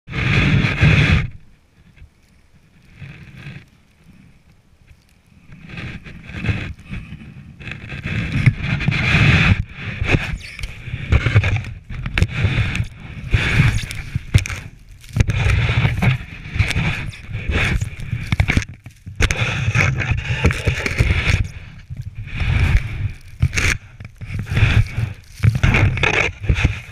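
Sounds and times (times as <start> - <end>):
snow shovel scraping snow: 0.1 - 1.4, 5.6 - 26.9
low wind rumble: 0.1 - 26.9
microphone handling noise: 0.1 - 26.9.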